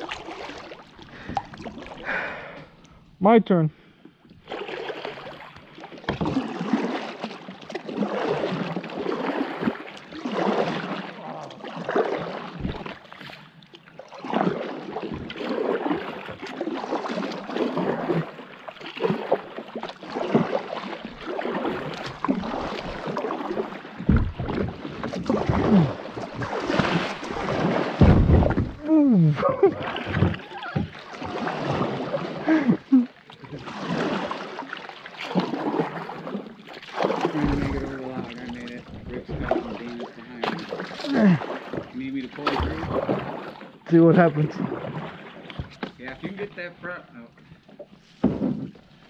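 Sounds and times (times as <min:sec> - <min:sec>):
paddle splashing through water: 0:00.0 - 0:02.6, 0:04.3 - 0:49.0
dull knocks: 0:24.0 - 0:24.7, 0:28.0 - 0:28.8.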